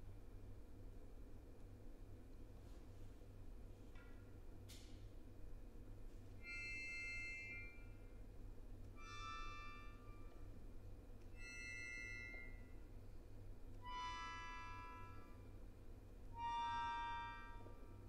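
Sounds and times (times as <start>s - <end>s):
accordion chords: 6.4s - 7.8s, 13.8s - 15.6s, 16.3s - 18.0s.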